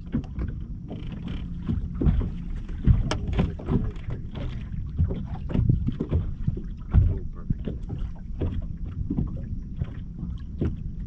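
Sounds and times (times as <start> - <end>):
waves slapping boat hull: 0.0 - 11.0
wind rumbling on microphone: 0.0 - 11.0.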